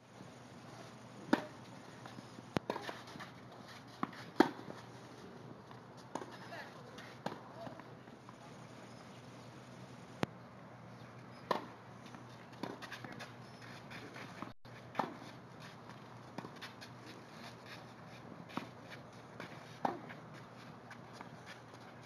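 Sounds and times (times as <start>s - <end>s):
tennis ball struck by rackets: 1.3s - 1.6s, 4.0s - 4.7s, 11.5s - 11.8s, 12.6s - 13.0s, 19.8s - 20.2s
tennis ball bouncing on court: 11.5s - 11.8s.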